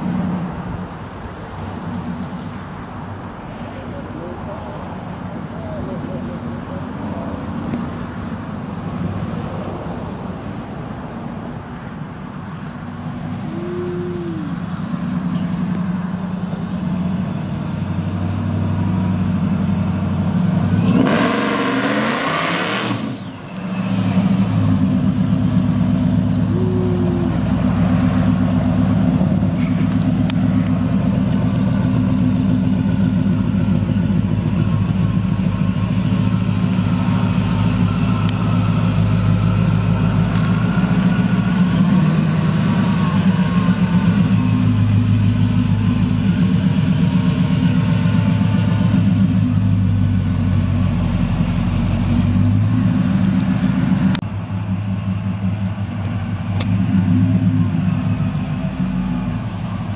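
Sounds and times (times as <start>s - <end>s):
truck engine revving: 18.0s - 59.9s.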